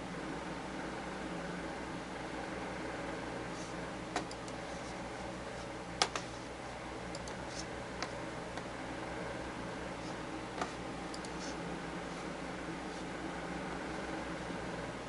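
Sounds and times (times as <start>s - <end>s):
computer mouse clicks: 4.2s - 4.6s, 7.1s - 8.2s, 10.6s - 11.6s.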